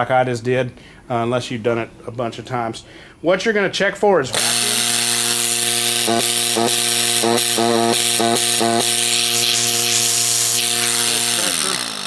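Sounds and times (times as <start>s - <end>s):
compressor humming with hiss: 4.3s - 12.0s.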